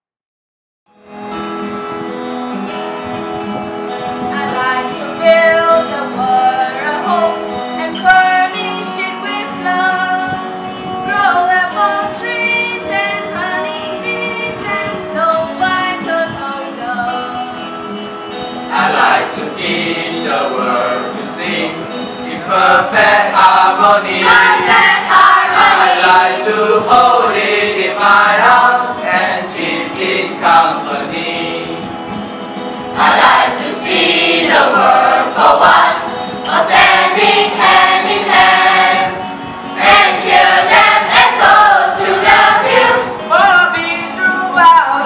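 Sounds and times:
mixed choir singing: 18.7 - 44.0.

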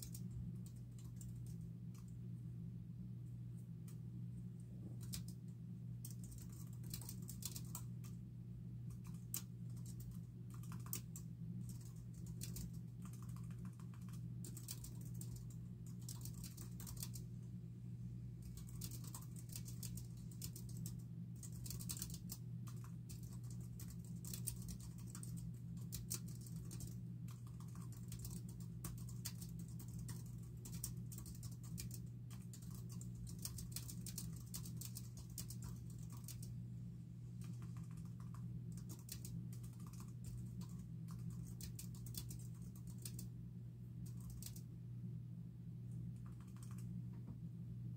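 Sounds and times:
typing on computer keyboard: 0.0 - 2.1, 5.0 - 5.4, 6.0 - 8.2, 8.9 - 17.3, 18.4 - 36.5, 37.4 - 43.3, 44.0 - 44.6, 46.2 - 46.9
steady low hum: 0.0 - 47.9.

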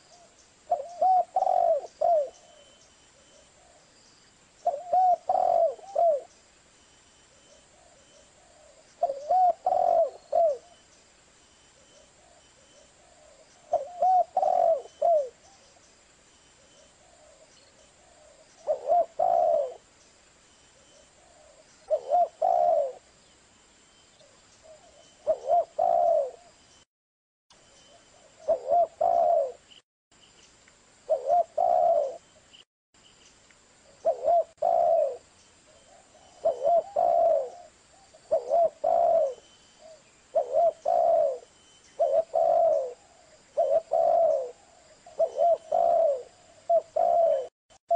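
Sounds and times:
dove cooing: 0.0 - 3.8, 4.6 - 6.3, 7.7 - 10.8, 12.0 - 15.7, 16.6 - 19.9, 21.2 - 23.1, 24.6 - 26.6, 28.1 - 29.7, 31.1 - 32.2, 33.9 - 47.5.

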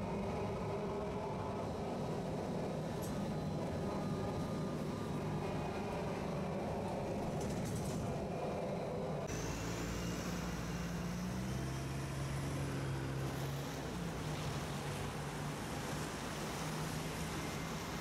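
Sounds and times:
faint high whine: 8.2 - 18.0.

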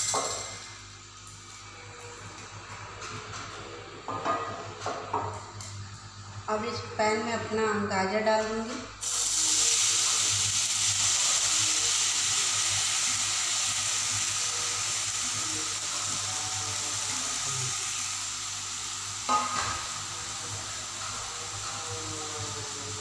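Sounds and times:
carrots sizzling in hot fat: 9.0 - 23.0.

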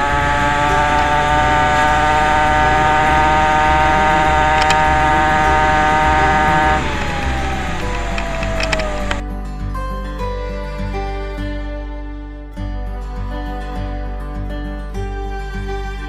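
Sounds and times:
small gas engine whining: 0.0 - 9.2.

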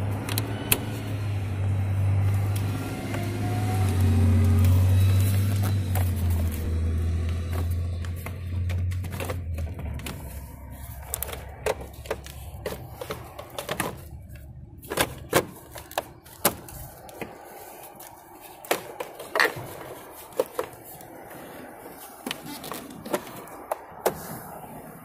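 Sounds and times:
plastic covers clicking and knocking: 2.4 - 17.4, 18.6 - 21.0, 22.2 - 24.2.

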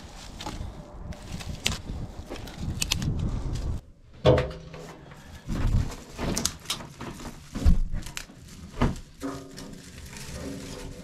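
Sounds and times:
dry twigs rustling and snapping: 0.0 - 3.8, 5.0 - 11.0
wood stove door knocks and clanks: 4.2 - 4.9.

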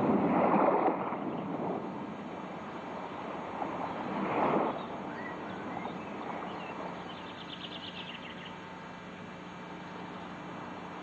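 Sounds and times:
wind noise: 0.0 - 7.0
bird chirps: 4.7 - 8.7.

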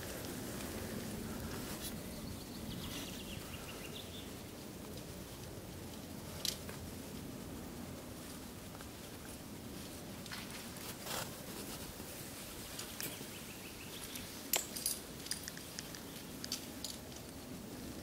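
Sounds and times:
low background noise: 0.0 - 18.0
carabiners clinking: 14.1 - 17.3.

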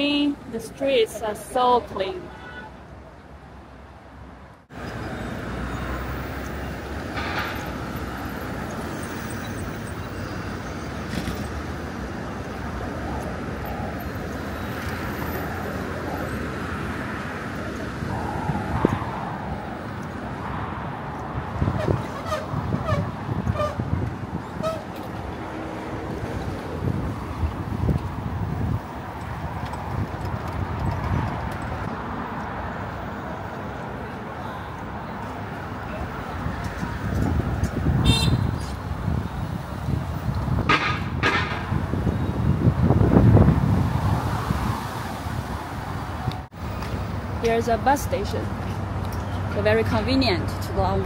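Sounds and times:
city street noise: 0.0 - 51.0
road vehicles passing: 0.0 - 51.0
footsteps on pavement: 46.3 - 47.6.

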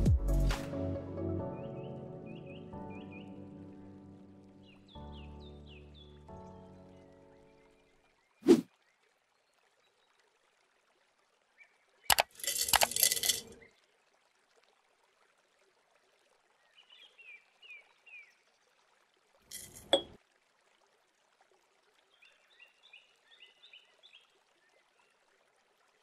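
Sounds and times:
herbs clinking into glass jar: 12.1 - 13.6, 19.5 - 20.1.

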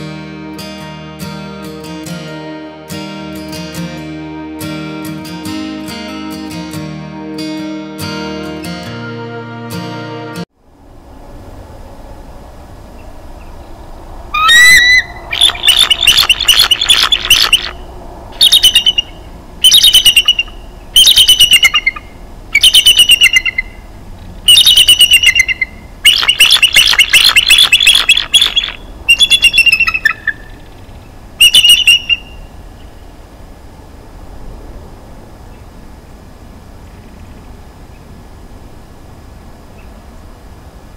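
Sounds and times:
eagle chattering calls: 14.3 - 17.8, 18.4 - 23.8, 24.5 - 32.5.

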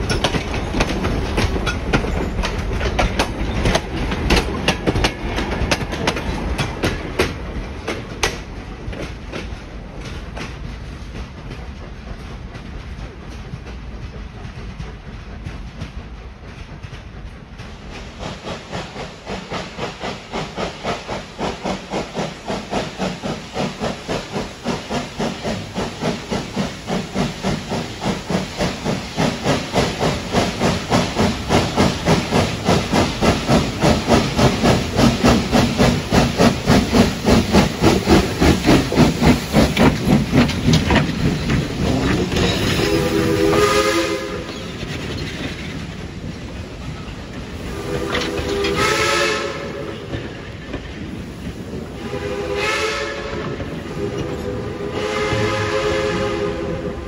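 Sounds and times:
steam locomotive chuffing: 0.0 - 57.0
train rumbling: 0.0 - 57.0
three-chime steam whistle: 52.0 - 57.0.

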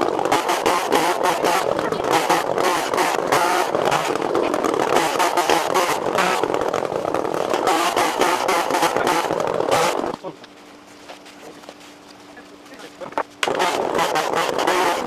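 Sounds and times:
chainsaw cutting wood: 0.0 - 10.2, 13.4 - 15.0.

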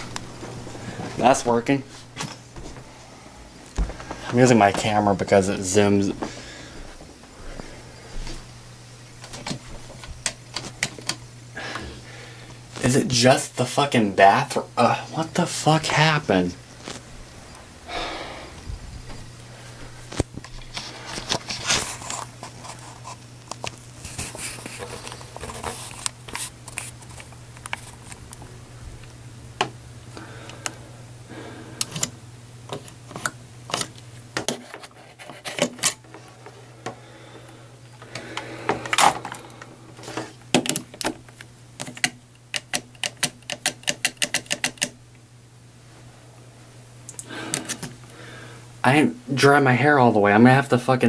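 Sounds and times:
low hum: 14.8 - 21.5
plastic plugs clicking and rattling: 40.5 - 45.0.

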